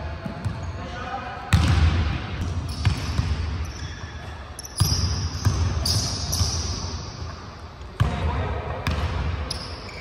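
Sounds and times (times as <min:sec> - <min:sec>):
basketballs bouncing on wood floor: 0:01.5 - 0:03.9, 0:04.8 - 0:06.6, 0:08.0 - 0:09.3
shoe squeaks: 0:02.6 - 0:07.2, 0:09.5 - 0:10.0.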